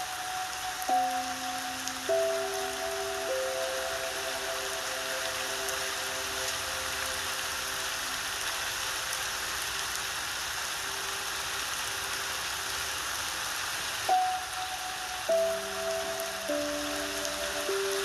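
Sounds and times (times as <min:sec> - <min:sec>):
sparse piano notes: 0:00.0 - 0:07.6, 0:14.1 - 0:18.0
steady rain: 0:00.0 - 0:18.0.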